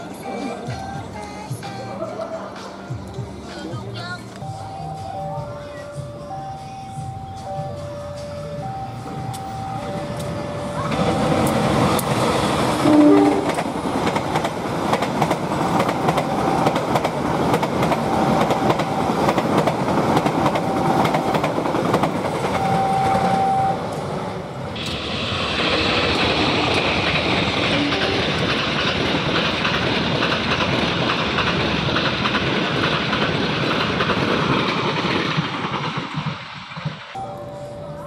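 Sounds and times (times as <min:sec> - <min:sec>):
train wheels rumbling on rails: 0:05.5 - 0:38.0
train horn blast: 0:12.8 - 0:13.6, 0:27.7 - 0:28.5
rail hiss: 0:23.9 - 0:29.0.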